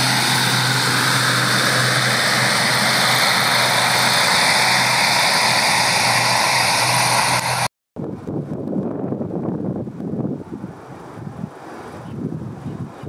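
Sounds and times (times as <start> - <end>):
high engine whine: 0.0 - 7.7
low propeller drone: 0.0 - 13.0.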